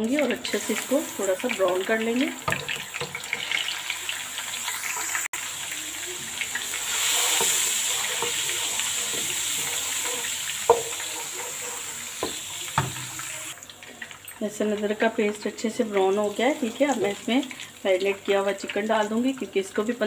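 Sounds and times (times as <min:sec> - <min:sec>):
paste sizzling in hot oil: 0:00.0 - 0:14.3, 0:15.0 - 0:20.0
wooden spoon stirring: 0:05.7 - 0:13.6.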